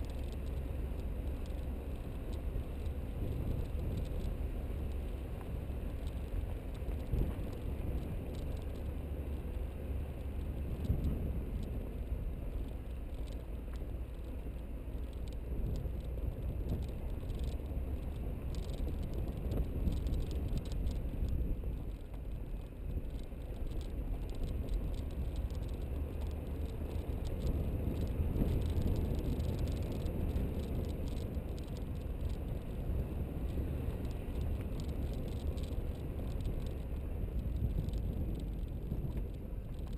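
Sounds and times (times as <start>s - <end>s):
car rumbling on gravel track: 0.0s - 39.9s
stones clicking and rattling: 5.9s - 9.0s, 12.5s - 32.8s, 33.9s - 39.9s.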